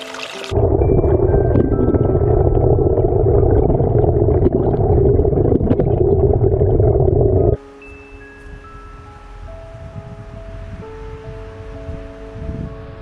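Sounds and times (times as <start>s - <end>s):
faint music notes: 7.6s - 13.0s.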